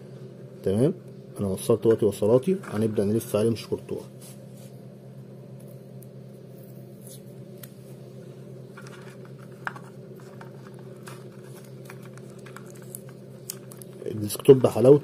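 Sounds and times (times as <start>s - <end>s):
steady low hum: 0.0s - 15.0s
hands handling wires and tape: 8.6s - 14.9s.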